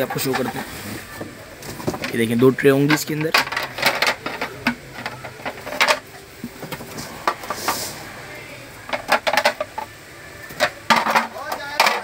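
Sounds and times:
plastic plates clacking: 0:00.0 - 0:00.7, 0:01.7 - 0:07.8, 0:08.9 - 0:12.0
plate scraping slide: 0:06.6 - 0:09.7.

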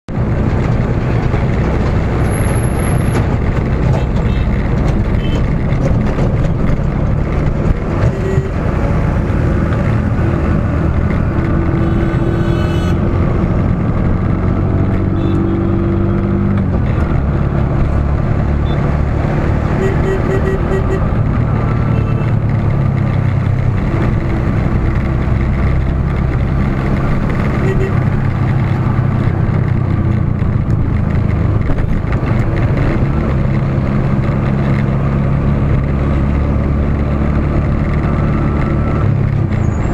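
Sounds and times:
road and wind noise: 0:00.0 - 0:39.9
engine running: 0:00.1 - 0:39.9
passing trucks and cars: 0:00.1 - 0:39.9
short horn beeps: 0:08.1 - 0:08.6, 0:11.8 - 0:13.0, 0:19.8 - 0:21.0, 0:27.6 - 0:28.0.

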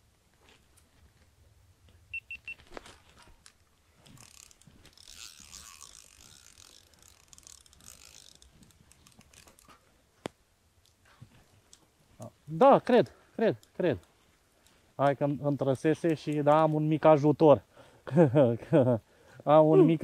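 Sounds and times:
quick high beeps: 0:02.1 - 0:02.6
fishing reel whirring and clicking: 0:04.2 - 0:09.7.

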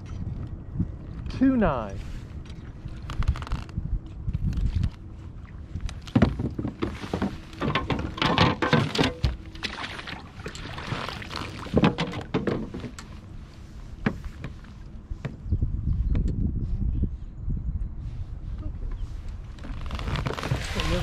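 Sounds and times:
rustling and scraping: 0:02.0 - 0:03.8, 0:05.9 - 0:10.1, 0:10.7 - 0:15.4, 0:19.0 - 0:21.0
knocks and thunks in a boat: 0:02.4 - 0:16.4, 0:18.8 - 0:21.0.

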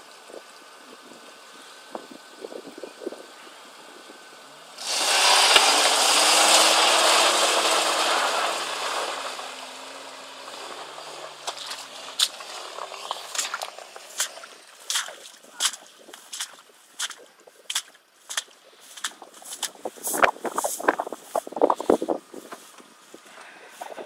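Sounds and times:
off-road engines revving: 0:00.0 - 0:24.0
tyres churning through mud: 0:00.0 - 0:24.0
sharp crackles: 0:06.7 - 0:22.8.

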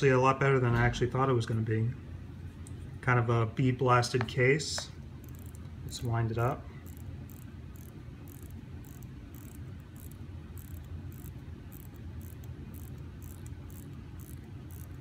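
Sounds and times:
watch winding ratchet clicking: 0:05.2 - 0:15.0.

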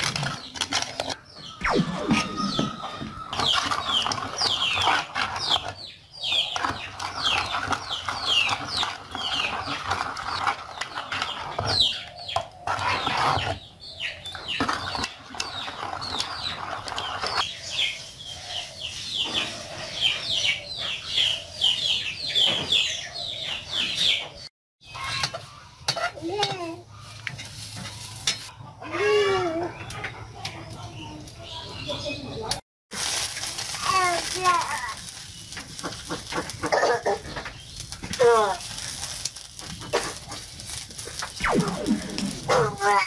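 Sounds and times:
chickens clucking and peeping: 0:17.7 - 0:32.6.

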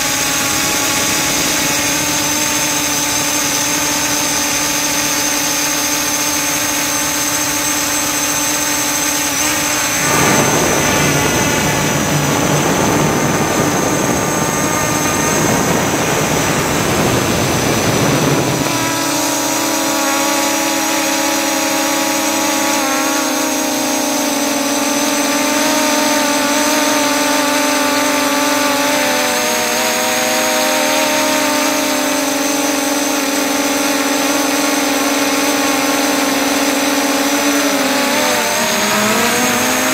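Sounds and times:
quadcopter motors droning: 0:00.0 - 0:39.9
loud rushing noise: 0:08.9 - 0:19.6.

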